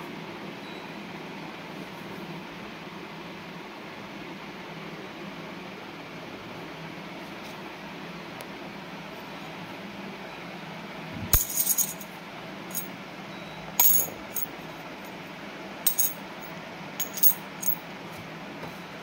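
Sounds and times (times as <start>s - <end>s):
steady low hum: 10.8s - 18.1s
coins clinking in a hand: 11.4s - 12.1s, 13.8s - 14.6s, 15.9s - 16.3s, 17.0s - 17.8s.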